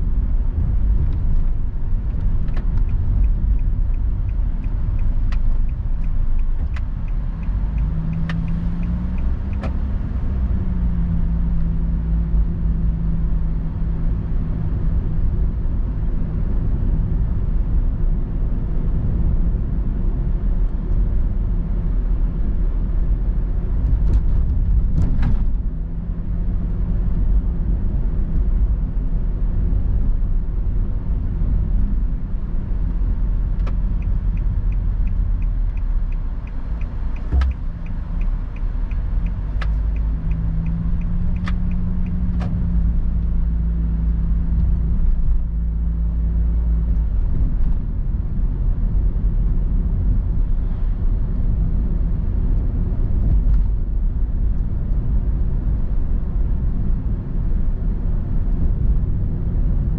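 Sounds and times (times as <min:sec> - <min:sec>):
car engine and tyre rumble: 0:00.0 - 0:59.9
turn signal ticking: 0:00.1 - 0:12.6, 0:30.8 - 0:47.9
sharp knocks from road: 0:37.2 - 0:37.7.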